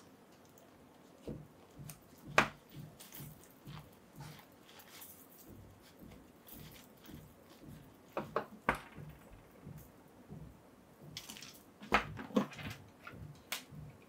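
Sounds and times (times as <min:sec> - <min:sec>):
soft rustle: 0:00.0 - 0:08.2.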